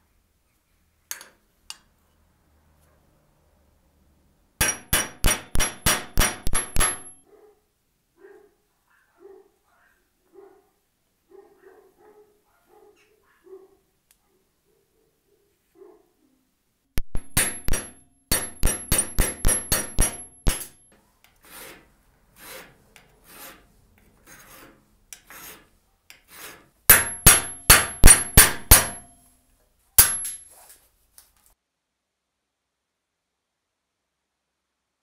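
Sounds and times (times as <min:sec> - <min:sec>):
hammer striking steel punch: 0:04.6 - 0:07.2, 0:17.0 - 0:20.8, 0:26.9 - 0:29.2, 0:30.0 - 0:30.4
file rasping on metal: 0:21.3 - 0:29.0.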